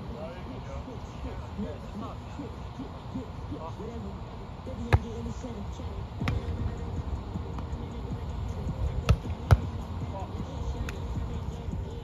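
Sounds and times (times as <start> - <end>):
volleyball being struck: 9.1 - 9.7.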